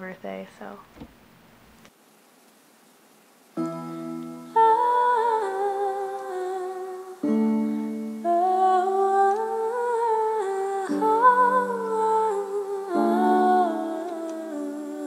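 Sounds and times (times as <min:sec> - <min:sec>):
electronic keyboard chords: 0:03.6 - 0:15.0
woman singing: 0:04.5 - 0:15.0.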